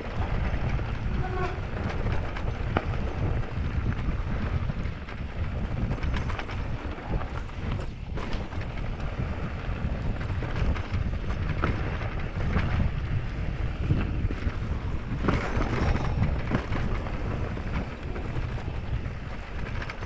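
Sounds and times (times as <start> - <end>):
bike knocks and rattles: 0.0 - 20.0
bike rumbling over dirt trail: 0.0 - 20.0.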